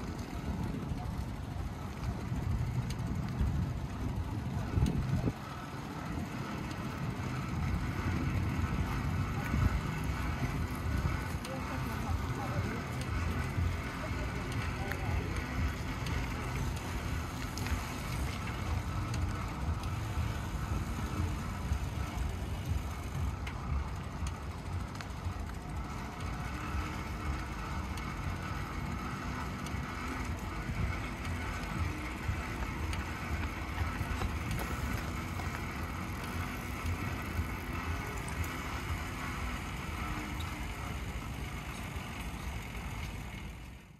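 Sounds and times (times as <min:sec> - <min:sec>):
bicycle tyres rolling on pavement: 0:00.0 - 0:43.9
bike rattling and clicking: 0:00.0 - 0:43.9.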